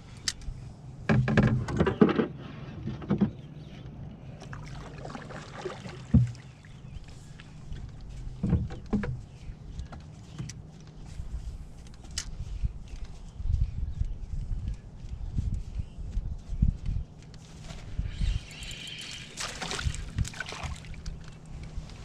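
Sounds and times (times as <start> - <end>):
steady low rumble: 2.3 - 22.0
knocks on canoe hull: 6.0 - 6.5.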